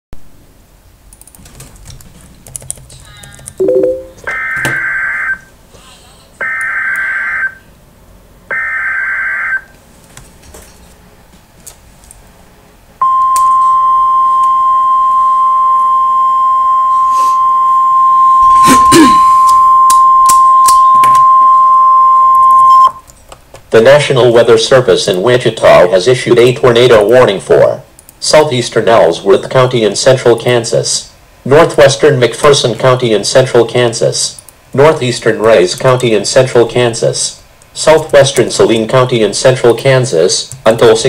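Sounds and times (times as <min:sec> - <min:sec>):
steady attention tone: 0:03.6 - 0:05.4, 0:13.0 - 0:23.0.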